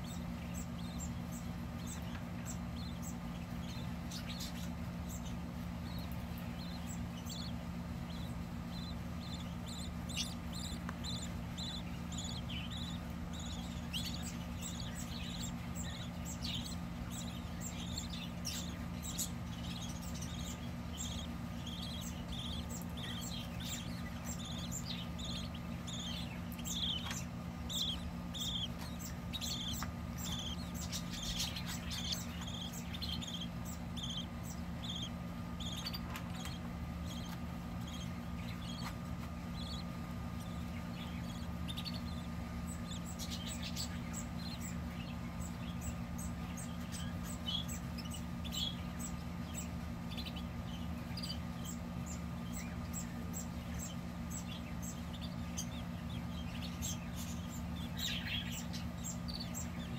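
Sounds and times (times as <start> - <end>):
chicks peeping: 0.0 - 59.9
steady low hum: 0.0 - 59.9.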